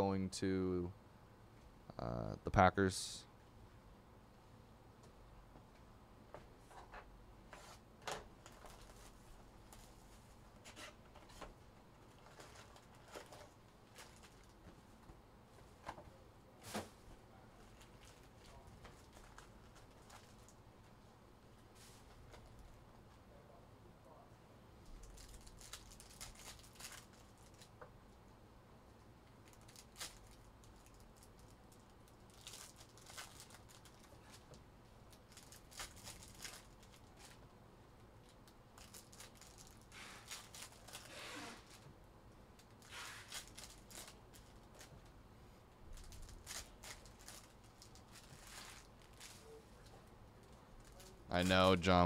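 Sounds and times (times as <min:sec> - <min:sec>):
card packs crinkling: 0:25.0 - 0:27.7, 0:29.4 - 0:34.4, 0:35.1 - 0:37.4, 0:38.4 - 0:41.9, 0:42.6 - 0:45.0, 0:45.9 - 0:49.5, 0:50.4 - 0:52.0.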